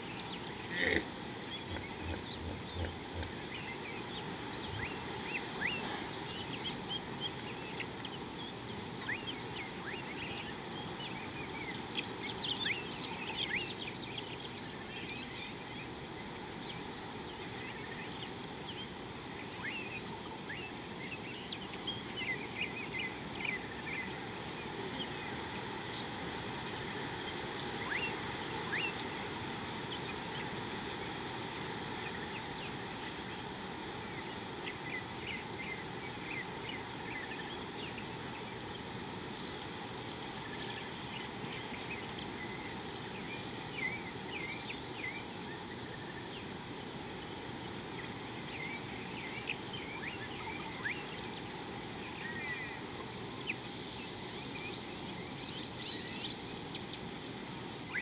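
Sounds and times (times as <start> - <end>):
bird chirps and calls: 0.0 - 15.7
steady background hiss: 0.0 - 58.0.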